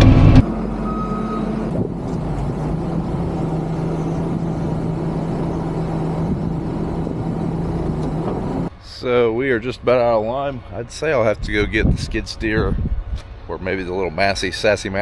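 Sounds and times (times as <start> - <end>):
diesel loader engine running: 0.0 - 15.0
short high beep: 0.8 - 1.6.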